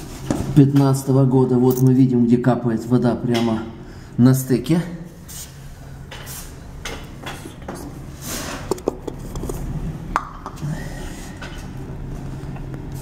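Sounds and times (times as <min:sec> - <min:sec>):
low hum and rustle: 0:05.1 - 0:13.0.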